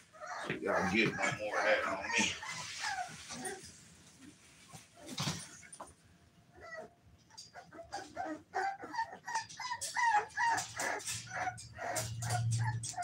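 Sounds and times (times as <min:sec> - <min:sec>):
puppies whining and yelping: 0:00.0 - 0:03.8, 0:06.4 - 0:13.0.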